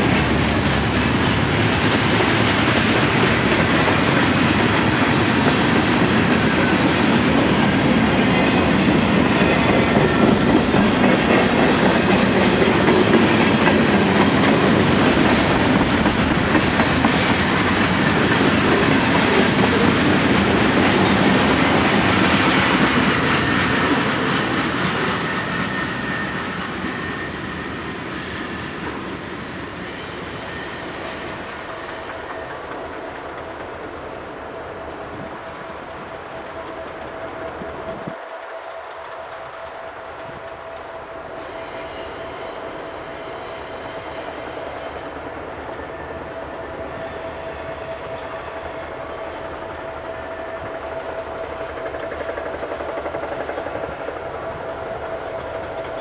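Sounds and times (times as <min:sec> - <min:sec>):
train wheels clattering over rails: 0:00.0 - 0:34.1, 0:50.5 - 0:56.0
wheel squeal: 0:22.6 - 0:32.8, 0:46.9 - 0:49.4.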